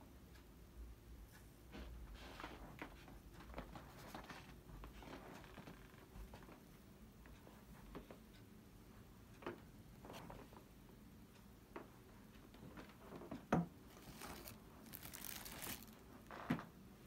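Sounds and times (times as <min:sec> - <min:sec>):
plastic packaging crinkling: 0:13.9 - 0:16.1.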